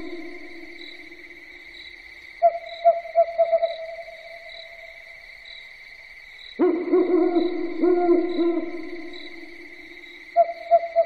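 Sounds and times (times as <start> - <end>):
owl hooting: 2.4 - 4.2, 6.6 - 9.2, 10.4 - 11.0.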